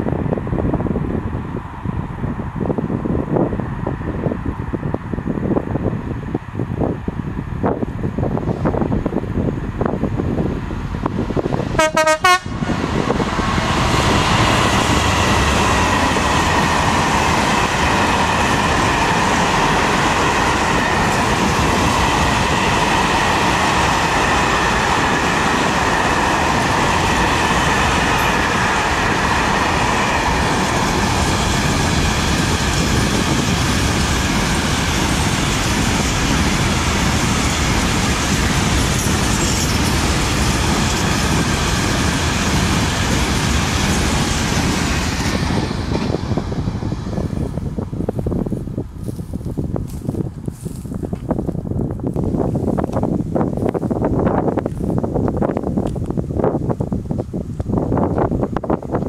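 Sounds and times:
freight train wheels clattering: 0:12.5 - 0:47.2.

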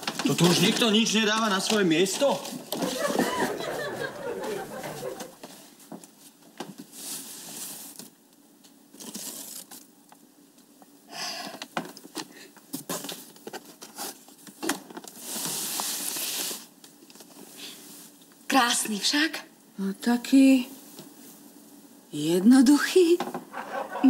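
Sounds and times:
paper bag and box rustling: 0:00.0 - 0:05.6, 0:06.2 - 0:08.2, 0:08.9 - 0:09.9, 0:11.9 - 0:17.4.

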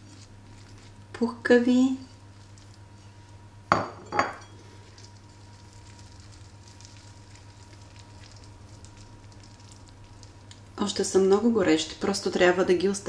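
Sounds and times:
crisp pastry crackling: 0:00.0 - 0:03.5, 0:04.6 - 0:11.4.

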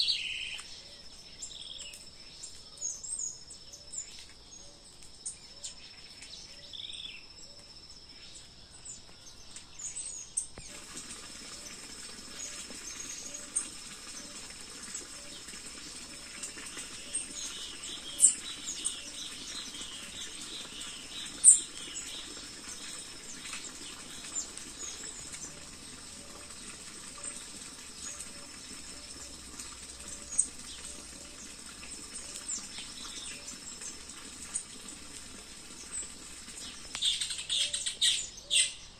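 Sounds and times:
birds chirping and singing: 0:00.0 - 0:04.8, 0:36.9 - 0:38.9.

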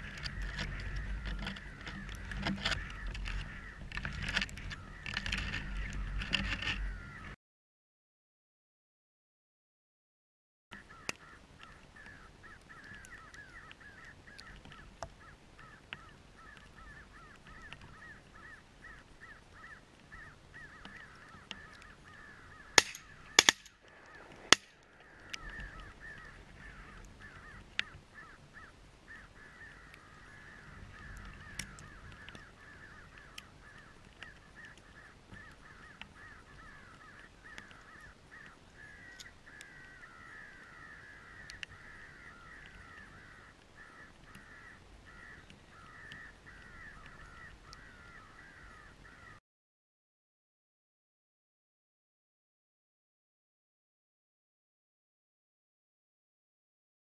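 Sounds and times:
crows cawing: 0:00.0 - 0:07.4, 0:10.7 - 0:49.4
loud gunshots: 0:22.8 - 0:23.7.

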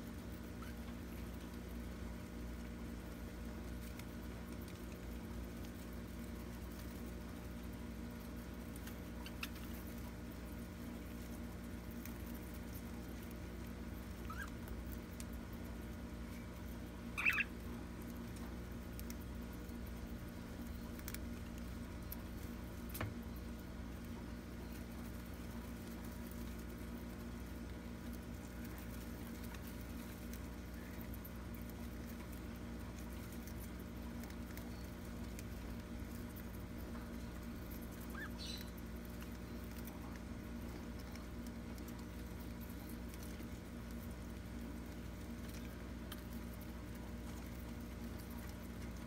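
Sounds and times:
budgies pecking at leaves: 0:00.0 - 0:49.0
steady background hum: 0:00.0 - 0:49.0
budgie chirp: 0:14.3 - 0:14.5, 0:17.2 - 0:17.6, 0:38.1 - 0:38.7.

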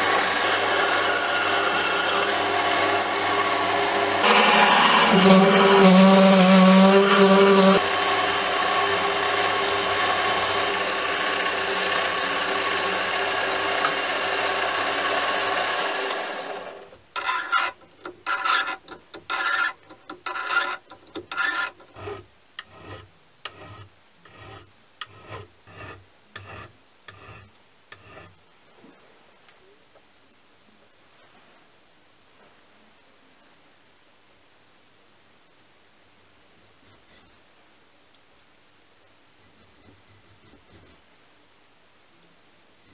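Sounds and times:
lathe cutting metal hiss: 0:00.1 - 0:04.3
hand file strokes on metal: 0:00.4 - 0:07.8, 0:17.2 - 0:28.4, 0:39.4 - 0:41.0.

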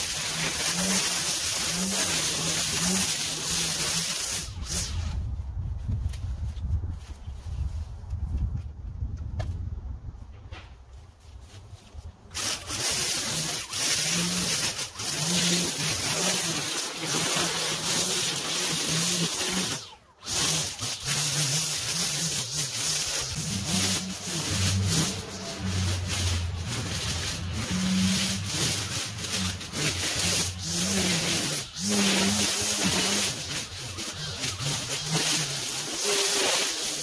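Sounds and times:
gas mower cutting tall grass: 0:00.0 - 0:05.1, 0:12.3 - 0:37.0.

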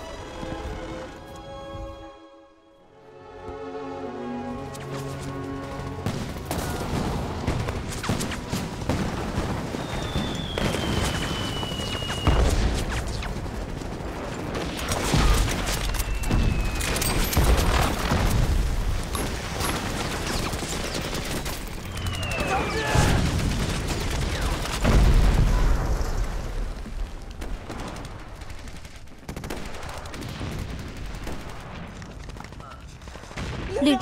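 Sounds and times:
music: 0:00.0 - 0:09.0
heavy explosions: 0:06.0 - 0:20.2, 0:22.3 - 0:28.5
rifle and machine-gun fire: 0:06.0 - 0:34.0
falling whistle of shells: 0:09.7 - 0:12.6, 0:15.8 - 0:17.4, 0:21.8 - 0:23.2.

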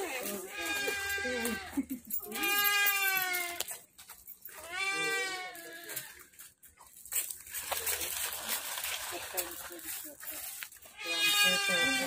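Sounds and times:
peafowl calling: 0:11.0 - 0:12.0.

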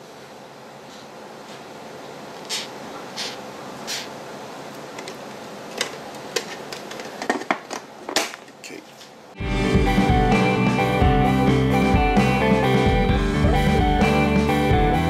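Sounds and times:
steady hiss: 0:00.0 - 0:06.3.

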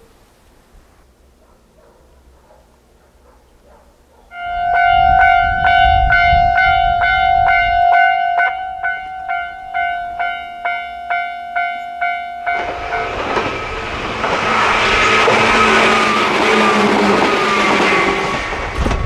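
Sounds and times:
approaching train: 0:01.0 - 0:19.0
level-crossing alarm dinging: 0:04.3 - 0:18.6.

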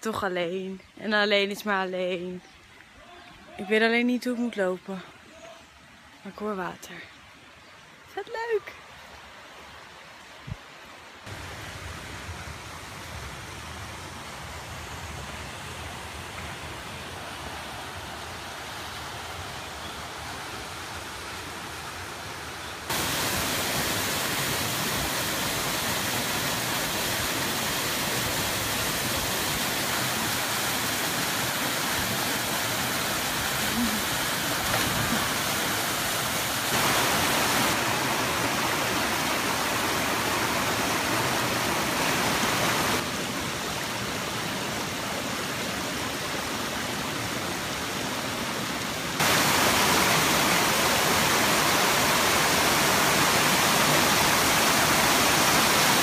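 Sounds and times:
water rushing over rocks: 0:22.9 - 0:56.0.

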